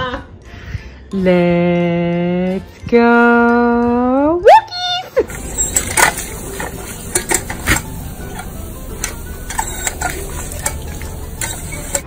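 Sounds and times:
dog drinking with splashes: 5.3s - 12.0s
water fountain spraying: 5.3s - 12.0s.

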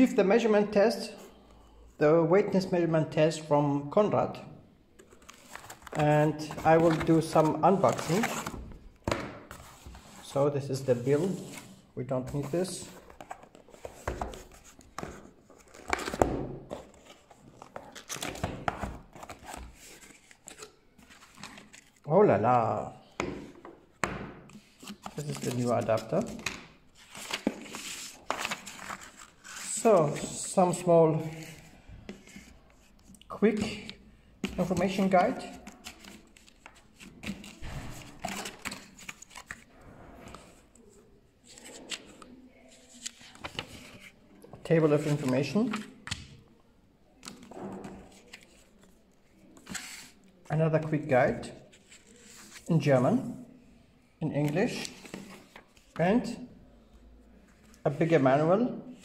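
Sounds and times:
paper and cardboard rustling: 5.0s - 22.0s, 24.5s - 40.7s, 41.4s - 46.2s, 47.2s - 50.3s.

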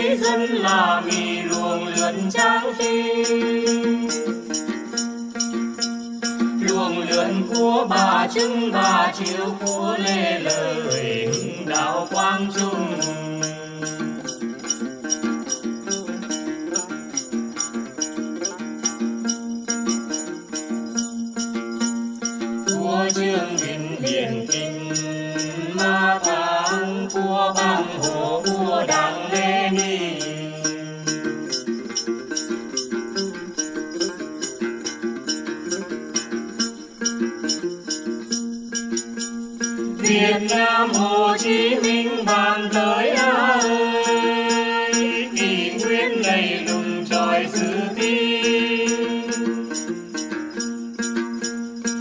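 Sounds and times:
men singing slow melody: 0.0s - 4.6s, 6.5s - 14.4s, 22.7s - 31.6s, 40.0s - 49.8s
jingling strokes: 0.0s - 52.0s
plucked lutes: 0.0s - 52.0s.

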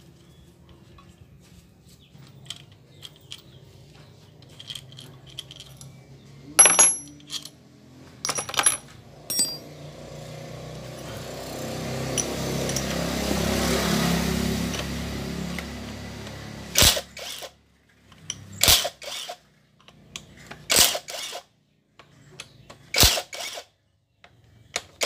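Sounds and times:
metal parts clinking: 4.4s - 6.0s, 6.6s - 7.6s, 8.2s - 9.7s.

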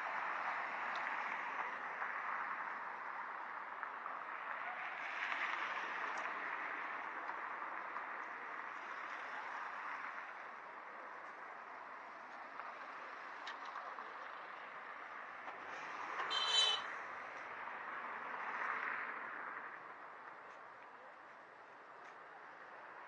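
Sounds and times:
noise of people: 0.0s - 18.4s
traffic: 0.0s - 23.0s.

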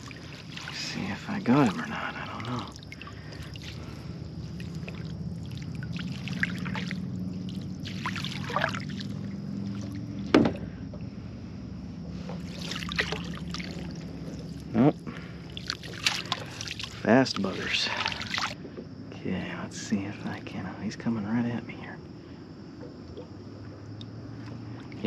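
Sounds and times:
net splashing through water: 0.0s - 10.2s, 12.4s - 18.6s
steady low hum: 0.0s - 25.0s.

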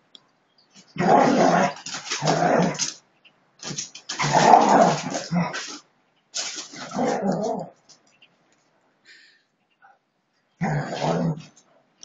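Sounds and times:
dogs growling while play-fighting: 1.0s - 2.9s, 4.1s - 5.8s, 6.5s - 7.8s, 10.6s - 11.6s.

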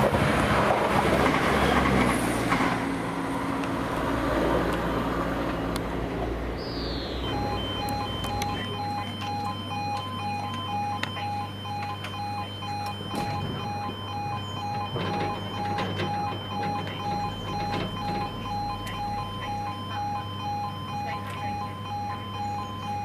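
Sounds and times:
low steady hum: 5.6s - 23.0s
two-tone crossing alarm beeps: 6.7s - 23.0s.

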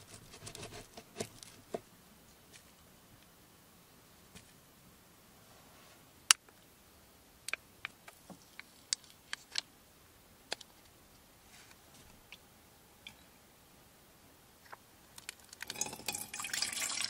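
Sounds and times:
plastic cup clicking and crackling: 14.6s - 16.3s.

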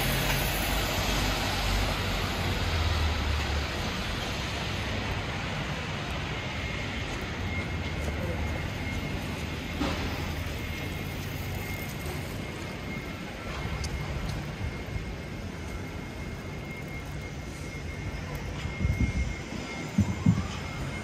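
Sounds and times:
traffic hiss: 0.0s - 14.2s.

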